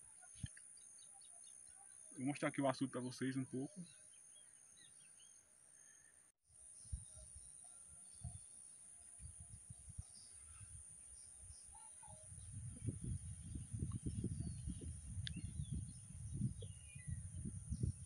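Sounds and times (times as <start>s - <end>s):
faint bird chirps: 0.0s - 2.7s, 3.3s - 18.0s
low rumbling on microphone: 12.3s - 18.0s.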